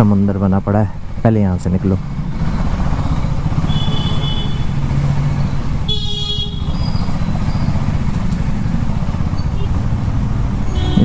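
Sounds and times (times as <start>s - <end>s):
motorcycle engine running: 2.0s - 11.0s
horn honking: 3.6s - 4.8s, 5.8s - 7.0s, 10.6s - 11.0s.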